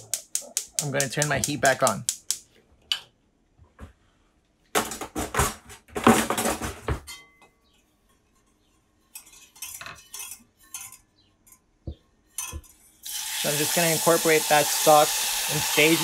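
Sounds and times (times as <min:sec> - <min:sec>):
wire whisk scraping a saucepan: 0:08.4 - 0:11.1.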